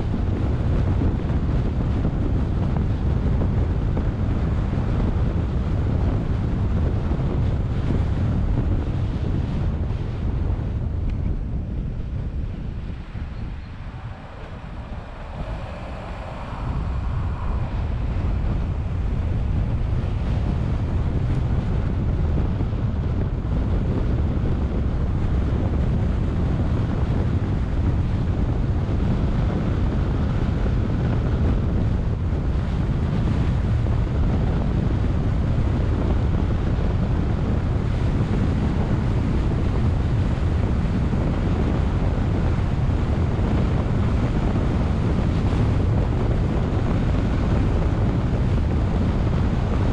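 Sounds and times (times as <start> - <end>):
car and tyres rumbling on road: 0.0 - 49.9
wind buffeting microphone: 0.0 - 49.9.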